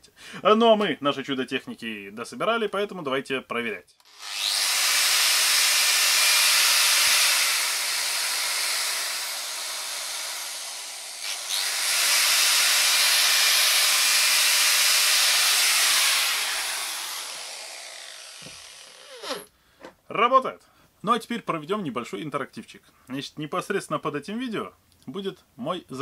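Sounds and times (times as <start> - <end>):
angle grinder running: 4.0 - 19.5.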